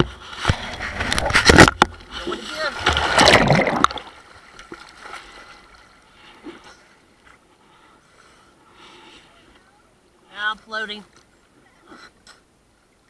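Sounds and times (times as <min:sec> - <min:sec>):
water splashing and rushing: 0:00.0 - 0:06.8
faint water sloshing: 0:00.1 - 0:13.0.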